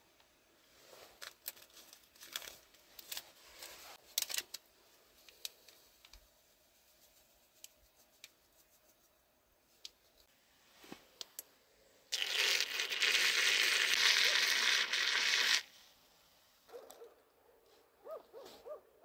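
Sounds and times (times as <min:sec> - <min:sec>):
packet crinkling: 0:01.2 - 0:03.3, 0:12.2 - 0:15.6.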